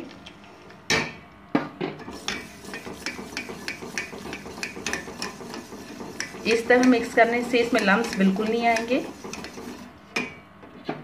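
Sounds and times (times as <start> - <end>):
whisk clacking against a pan: 2.0 - 10.3.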